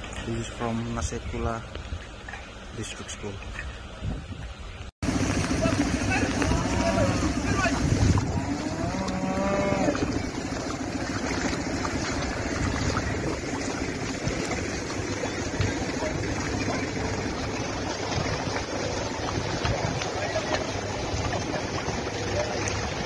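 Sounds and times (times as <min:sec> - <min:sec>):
floodwater rushing: 0:05.0 - 0:23.0
wind rushing: 0:06.6 - 0:08.7
cow mooing: 0:08.4 - 0:10.1.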